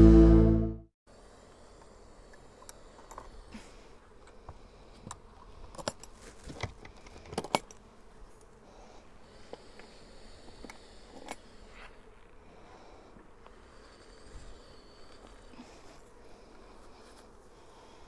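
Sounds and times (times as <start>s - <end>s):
bees humming: 7.8s - 18.0s.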